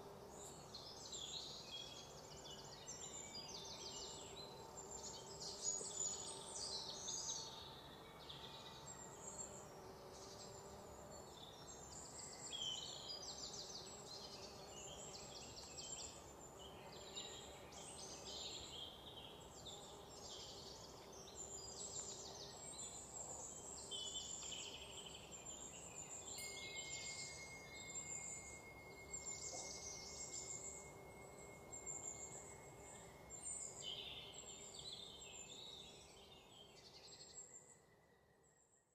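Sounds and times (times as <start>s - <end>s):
insects: 0.0s - 38.8s
birds chirping and trilling: 11.5s - 37.7s.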